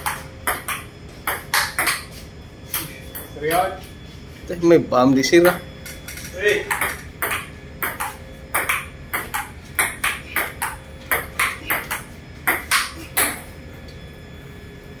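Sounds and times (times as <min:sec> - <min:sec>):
ping pong ball clicking: 0:00.0 - 0:02.1, 0:06.7 - 0:13.4.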